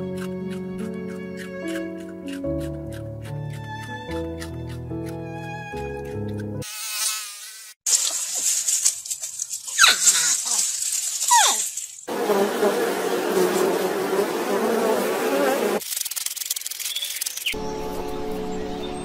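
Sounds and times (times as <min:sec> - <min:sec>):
hedgehog crunchy chewing: 0:00.0 - 0:05.2
bee buzzing: 0:12.1 - 0:15.8.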